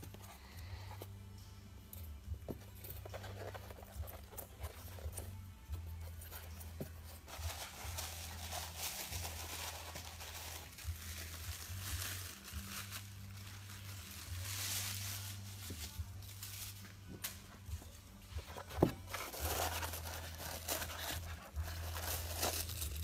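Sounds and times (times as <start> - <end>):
packing wrap crinkling and tearing: 7.3 - 17.1, 18.5 - 23.0.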